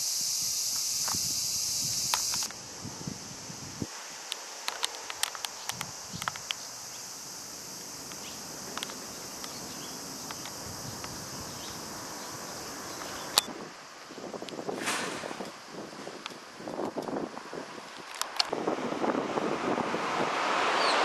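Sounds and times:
wind noise on microphone: 0.0 - 4.0, 4.7 - 21.0
insects droning: 0.0 - 21.0
sharp clicks: 0.7 - 2.6, 4.3 - 6.7, 8.0 - 11.8, 13.0 - 13.5, 18.0 - 18.5.

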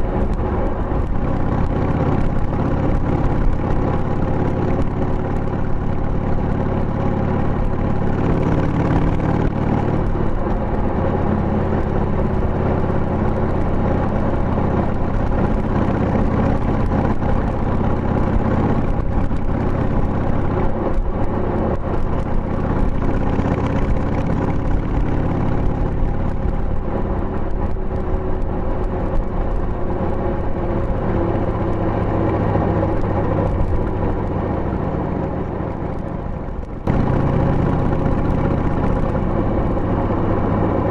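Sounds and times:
motorcycle engine running: 0.0 - 40.9.

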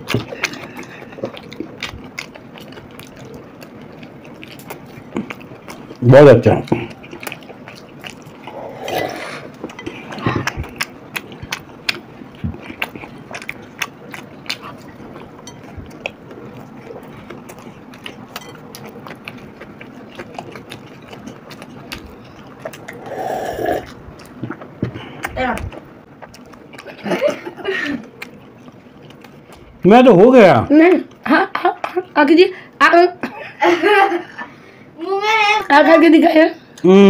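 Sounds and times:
people chewing food: 0.0 - 34.9, 35.6 - 37.0
swallowing gulp: 8.4 - 10.8, 22.2 - 25.4.

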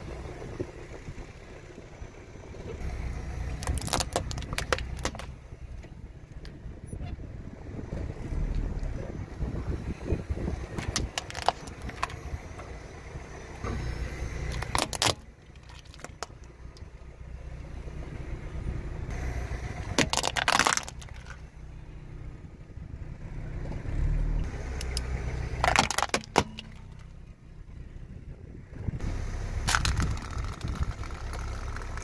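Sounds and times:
car low rumble: 0.0 - 32.0
plastic toys cracking and snapping: 3.5 - 5.3, 10.8 - 12.2, 14.5 - 16.4, 19.8 - 21.4, 24.8 - 27.0, 29.6 - 32.0.

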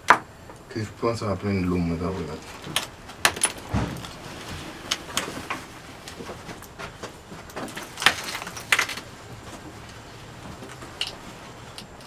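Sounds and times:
broken glass crunching: 7.5 - 9.1.

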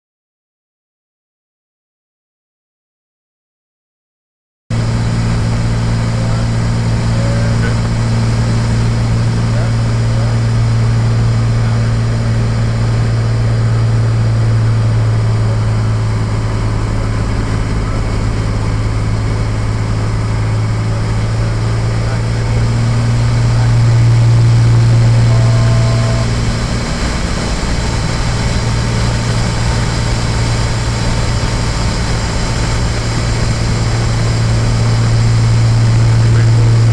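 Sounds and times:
airplane engine and propeller drone: 4.7 - 36.9.

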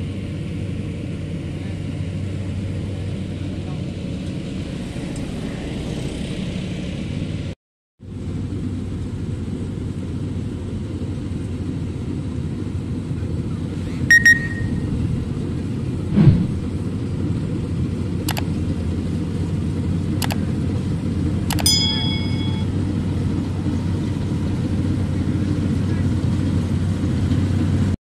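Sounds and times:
combine harvester rumbling: 0.0 - 28.0
brief high ringing tones: 14.1 - 14.9, 21.5 - 22.8
sharp clicks: 18.3 - 18.5, 20.2 - 20.4, 21.5 - 21.8.

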